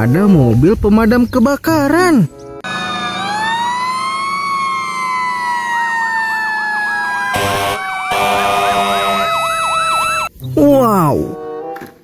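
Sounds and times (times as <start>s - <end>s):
siren slow wail: 2.6s - 10.3s
siren yelping rapidly: 2.6s - 10.3s
fire engine horn blasts: 7.3s - 9.3s.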